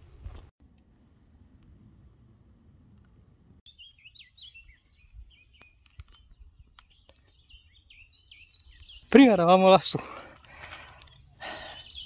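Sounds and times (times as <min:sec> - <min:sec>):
small bird chirping: 0:03.7 - 0:09.2, 0:10.8 - 0:12.0.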